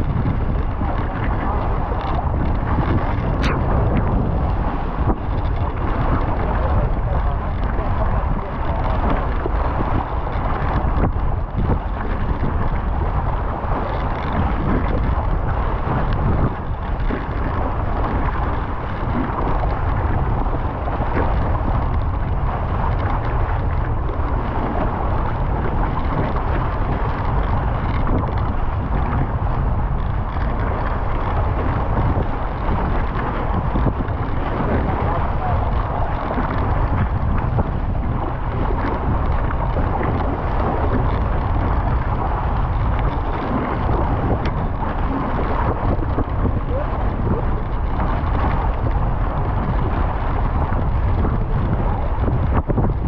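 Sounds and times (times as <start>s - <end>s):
rushing water: 0.0s - 53.0s
strong wind buffeting microphone: 0.0s - 53.0s.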